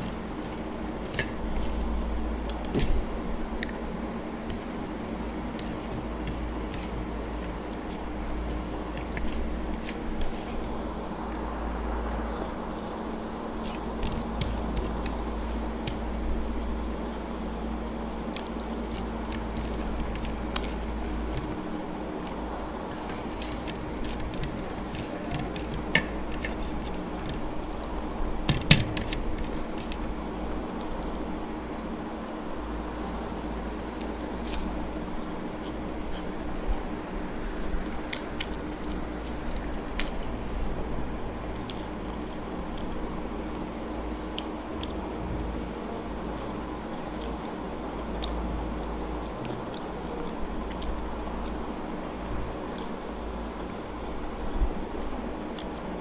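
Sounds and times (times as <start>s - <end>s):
fingers scraping rice from plate: 0.0s - 16.7s, 18.3s - 28.2s
low hum and hiss: 0.0s - 56.0s
wet squishes of food mixed by hand: 0.0s - 56.0s.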